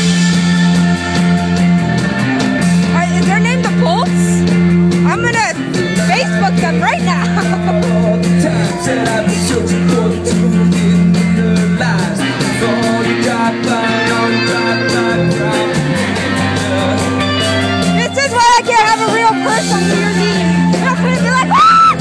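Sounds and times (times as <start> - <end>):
bass guitar: 0.0 - 22.0
drums: 0.0 - 22.0
electric guitar: 0.0 - 22.0
keyboard: 0.0 - 22.0
person singing: 5.6 - 18.2, 19.0 - 22.0.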